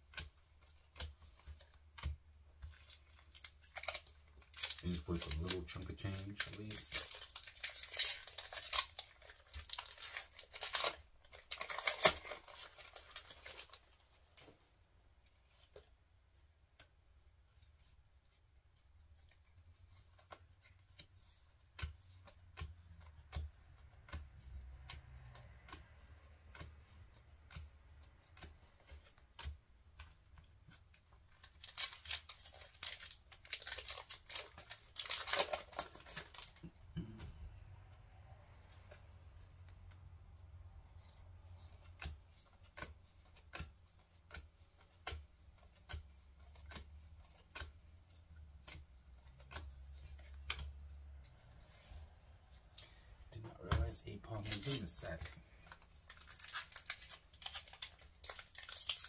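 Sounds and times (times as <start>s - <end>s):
cards clicking: 0.0s - 14.5s, 19.2s - 37.8s, 40.8s - 52.0s, 52.6s - 59.0s
foil wrappers crinkling and ripping: 2.7s - 14.4s, 30.7s - 36.7s, 54.3s - 59.0s.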